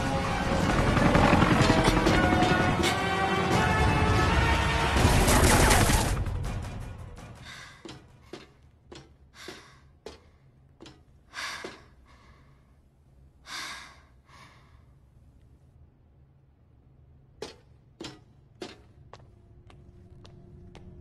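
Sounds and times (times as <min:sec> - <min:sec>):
person breathing: 0:07.4 - 0:08.0, 0:09.3 - 0:10.6, 0:11.2 - 0:15.1.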